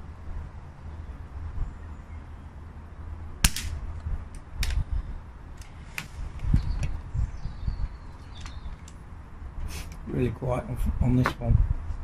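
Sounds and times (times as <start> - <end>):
silenced air rifle shot: 3.4 - 3.9.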